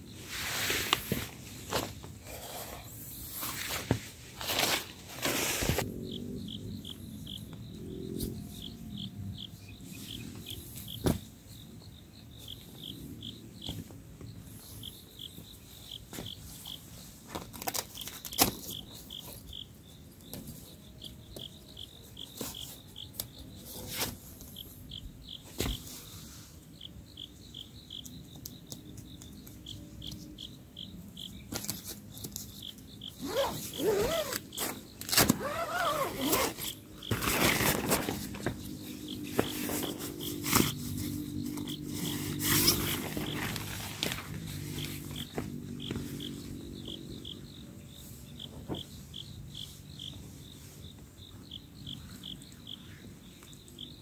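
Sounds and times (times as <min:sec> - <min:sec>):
crickets chirping: 0:00.0 - 0:54.0
rustling: 0:00.2 - 0:05.8, 0:33.2 - 0:46.3.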